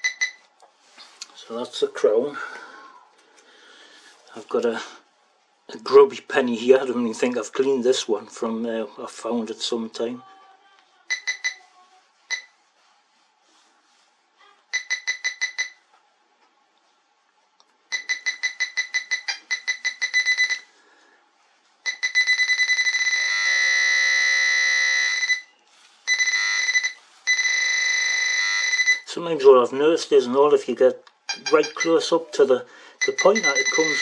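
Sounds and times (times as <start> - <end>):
pinpointer beeping: 0.0 - 0.4, 11.1 - 11.6, 14.7 - 15.8, 17.9 - 20.7, 21.9 - 25.5, 26.1 - 29.1, 31.2 - 32.2, 33.0 - 34.0.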